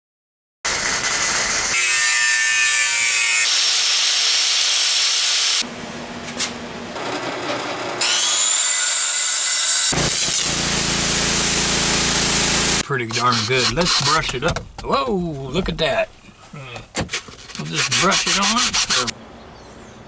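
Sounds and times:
angle grinder cutting metal: 0:00.7 - 0:05.6, 0:07.0 - 0:14.3, 0:17.7 - 0:19.1
circular saw cutting a board: 0:00.7 - 0:05.6, 0:07.0 - 0:14.3, 0:17.6 - 0:19.1.

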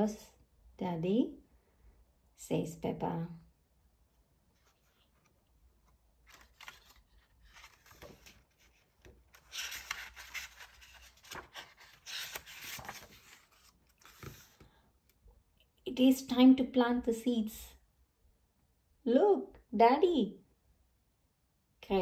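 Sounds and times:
paper page rustling: 0:04.5 - 0:14.7.

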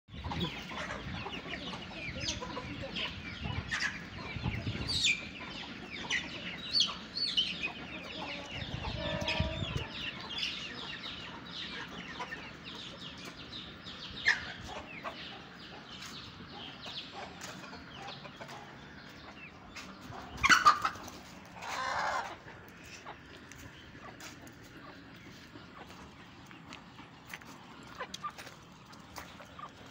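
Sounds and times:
chickens clucking: 0:00.1 - 0:29.9
chicks peeping: 0:00.1 - 0:29.9
chicken squawking: 0:20.3 - 0:22.4.

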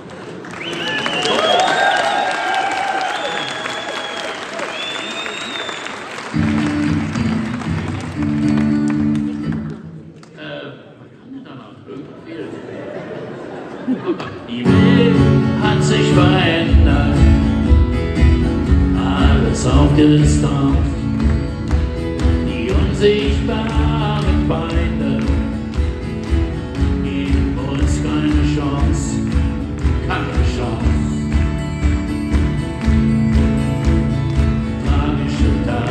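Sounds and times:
country acoustic guitar music: 0:06.3 - 0:10.1, 0:14.3 - 0:35.9.

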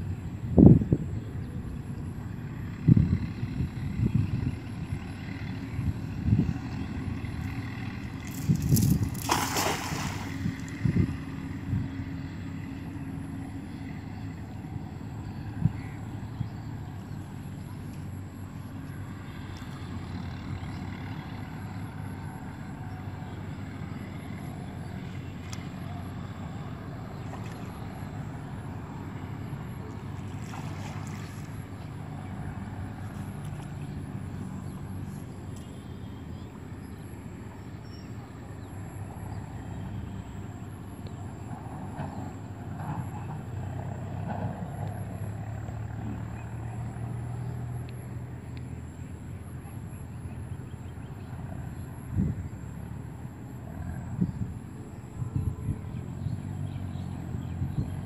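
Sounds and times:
distant motor humming: 0:00.0 - 0:58.0.

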